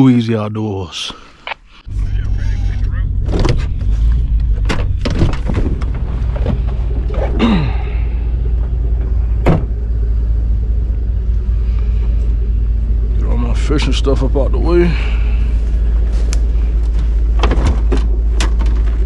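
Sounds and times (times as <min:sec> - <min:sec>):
truck engine low drone: 0:00.0 - 0:19.0
sharp knocks and clunks: 0:03.2 - 0:06.8, 0:09.4 - 0:09.8, 0:17.3 - 0:18.8.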